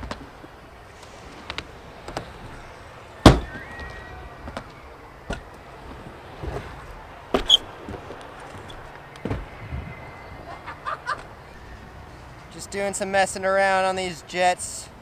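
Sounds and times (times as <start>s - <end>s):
scooter landing thud: 3.2s - 3.6s.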